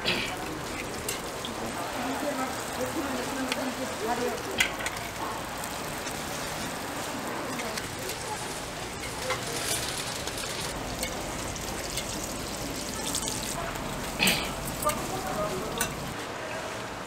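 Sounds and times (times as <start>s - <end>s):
pancakes sizzling in oil: 0.0s - 16.2s
metal spatula scraping a griddle: 6.0s - 16.1s.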